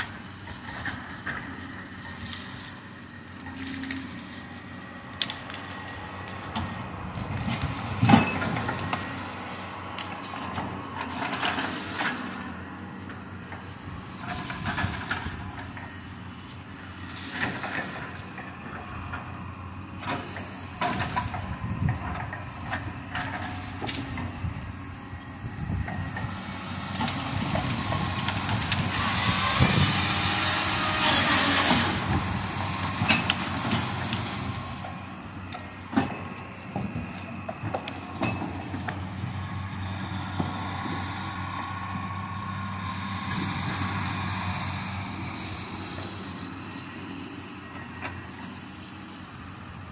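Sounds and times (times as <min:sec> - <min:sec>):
diesel engine under load: 0:00.0 - 0:49.9
loud scraping hiss: 0:26.3 - 0:35.2.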